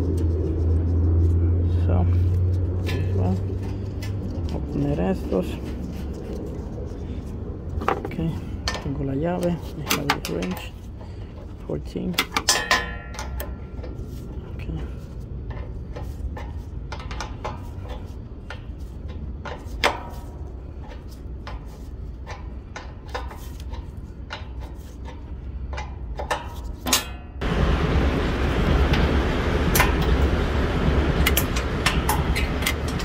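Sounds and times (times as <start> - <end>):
steady low rumble: 0.0 - 33.0
wrench clicking on bolt: 12.1 - 13.9.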